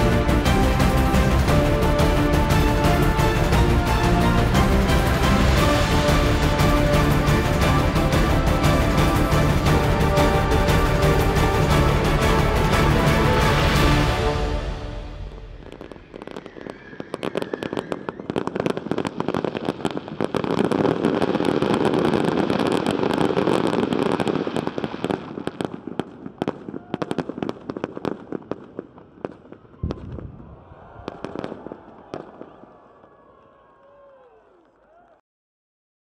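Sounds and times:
deep firework boom: 0:00.0 - 0:18.6, 0:29.8 - 0:32.6
fireworks crackling and popping: 0:00.0 - 0:33.2.

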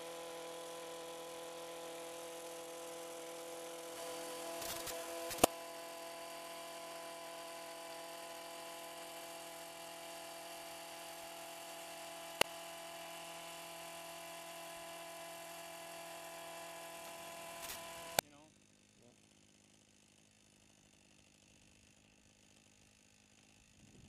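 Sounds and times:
edger blade cutting sod: 0:00.0 - 0:18.2
small gas engine running: 0:00.0 - 0:24.0
sharp click: 0:04.6 - 0:05.6, 0:17.5 - 0:18.2.

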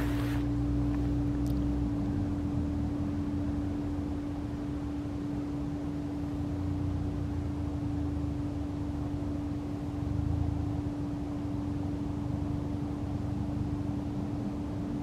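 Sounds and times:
machine hum: 0:00.0 - 0:01.3.

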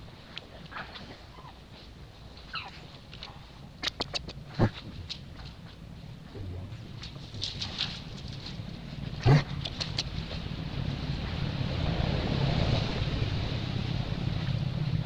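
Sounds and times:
wind rumble on microphone: 0:00.0 - 0:15.0
dry leaves rustling: 0:05.0 - 0:14.7.

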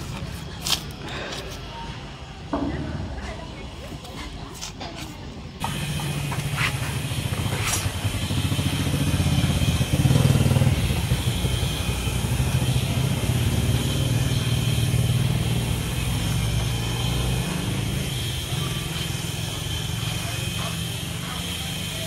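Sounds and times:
motor droning: 0:05.6 - 0:22.0.

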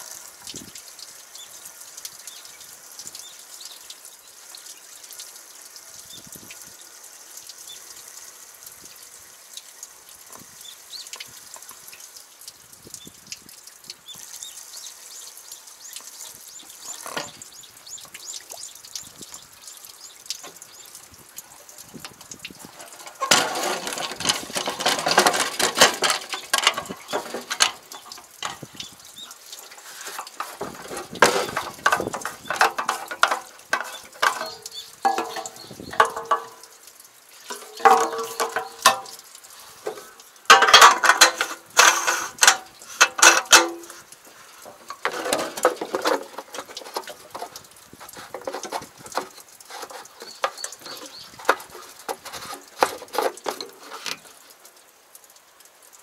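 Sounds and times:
fuel pouring into tank: 0:15.4 - 0:56.0
metal clinks and knocks: 0:22.0 - 0:28.8, 0:30.1 - 0:36.7, 0:37.5 - 0:39.2, 0:39.9 - 0:44.0.

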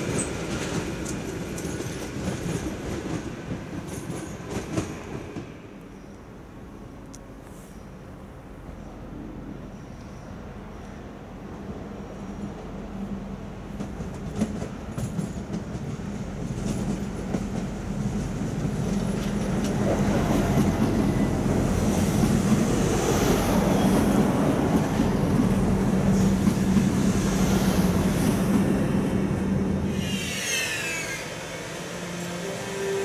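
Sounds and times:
diesel railcar engine humming: 0:05.5 - 0:33.0
train wheels clacking: 0:13.7 - 0:21.4.

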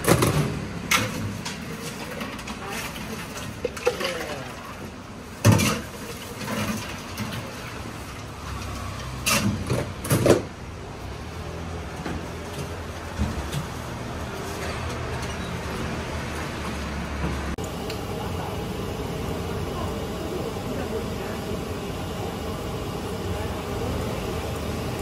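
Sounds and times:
metal lids and cups clattering: 0:00.0 - 0:07.8
steady low hum: 0:17.6 - 0:25.0.

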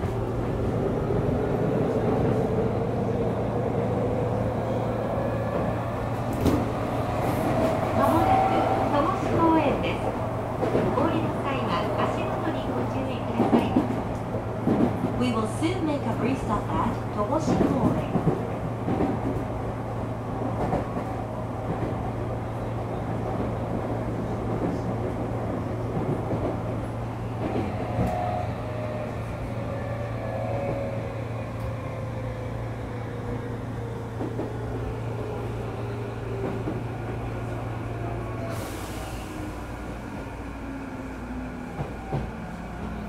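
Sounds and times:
train running on rails: 0:00.0 - 0:43.0.

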